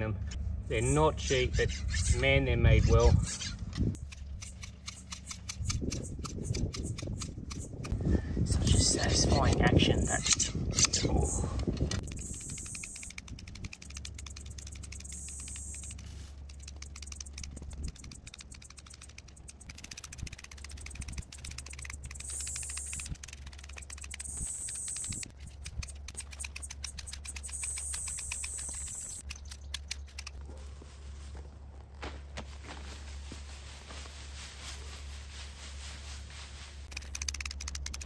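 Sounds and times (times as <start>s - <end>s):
hand shears snipping hedge: 0.8s - 8.0s, 12.0s - 30.6s, 36.8s - 38.0s.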